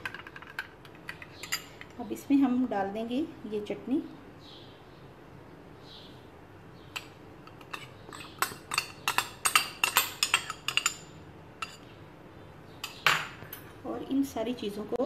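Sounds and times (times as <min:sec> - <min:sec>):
spoon clinking against bowls: 0:00.0 - 0:02.0, 0:07.0 - 0:11.8.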